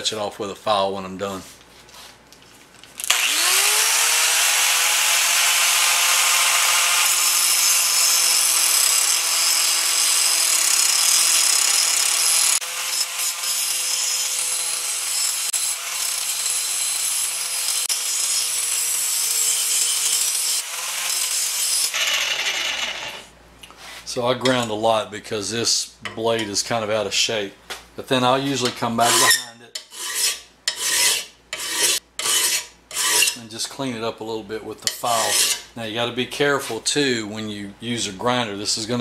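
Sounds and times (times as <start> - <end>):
angle grinder grinding metal: 3.0 - 23.3, 28.5 - 33.4, 34.8 - 35.7.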